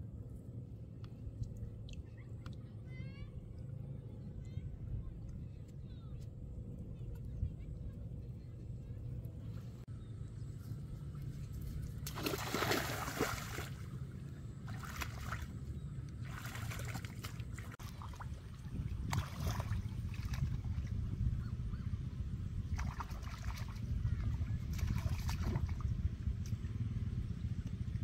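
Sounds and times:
low rumble: 0.0s - 28.0s
hands splashing in water: 12.0s - 13.8s, 14.7s - 15.5s, 16.2s - 18.3s.

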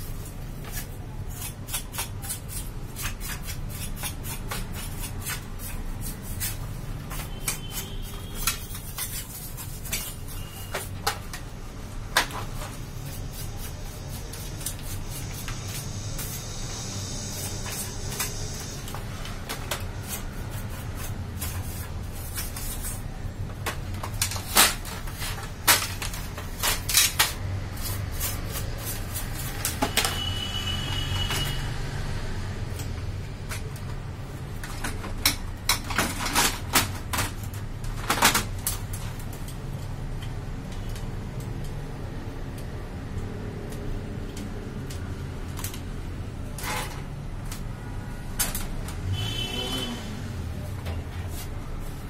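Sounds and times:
plastic parts clicking and knocking: 34.6s - 39.6s.

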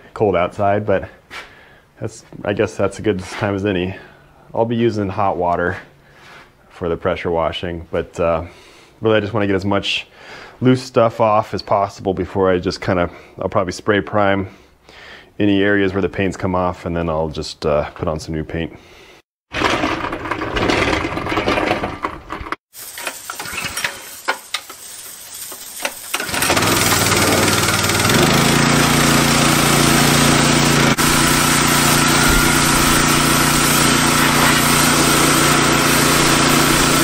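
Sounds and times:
high-pressure spray hissing: 22.7s - 37.0s
small gasoline engine running: 26.1s - 37.0s.

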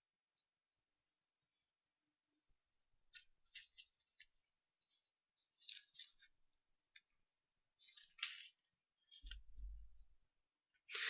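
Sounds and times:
paper pages rustling: 3.0s - 10.0s, 10.8s - 11.0s.

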